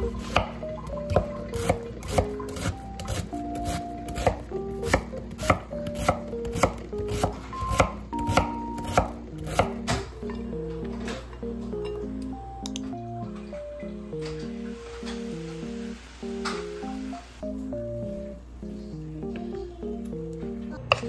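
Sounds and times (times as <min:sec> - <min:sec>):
light background music: 0:00.0 - 0:21.0
knife chopping on wooden board: 0:01.1 - 0:10.0.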